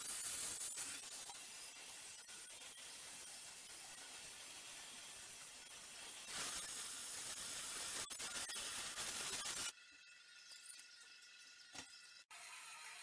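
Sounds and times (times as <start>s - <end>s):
gas torch flame hissing: 0.0s - 9.7s.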